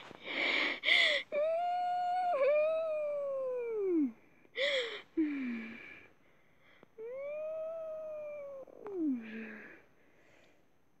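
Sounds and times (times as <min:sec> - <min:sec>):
boy crying: 0:01.0 - 0:04.2.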